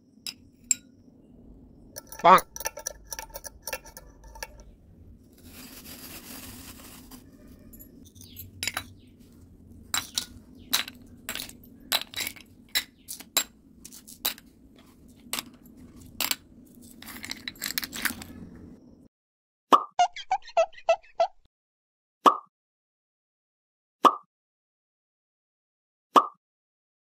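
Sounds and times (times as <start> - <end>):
small bricks clinking into bowl: 2.0 - 4.7, 5.4 - 9.0, 9.9 - 18.7
rustle of handling: 5.2 - 12.3.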